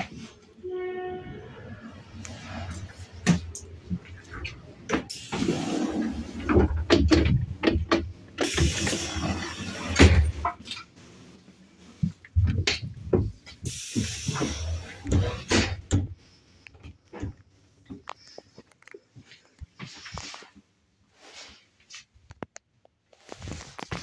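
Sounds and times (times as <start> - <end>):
low train rumble: 0.0 - 9.8
knocks bumps and clicks: 6.4 - 8.9, 12.0 - 14.4.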